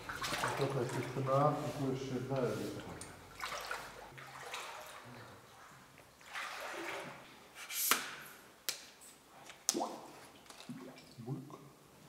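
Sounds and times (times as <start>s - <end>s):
wading through water splashing: 0.0s - 7.4s
sharp splash: 0.1s - 1.2s, 3.4s - 5.0s, 6.2s - 7.2s.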